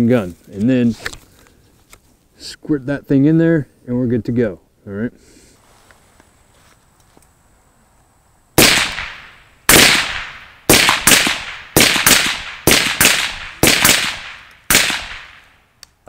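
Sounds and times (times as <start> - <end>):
rifle shots echoing: 8.6 - 15.6.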